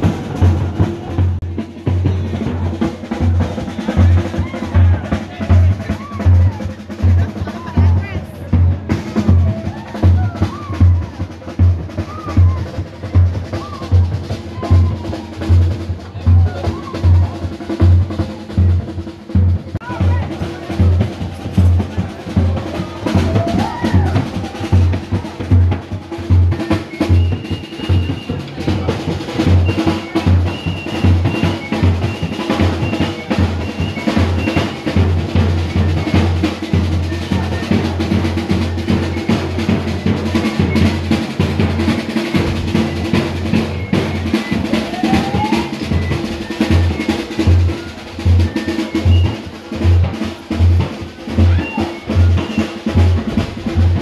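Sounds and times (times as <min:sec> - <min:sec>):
heavy bass drum beat: 0:00.0 - 0:54.0
snare drum rolls: 0:00.0 - 0:54.0.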